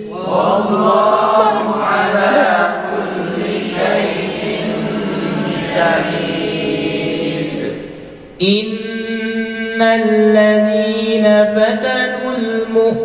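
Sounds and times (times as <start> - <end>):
voices chanting together: 0.0 - 8.4.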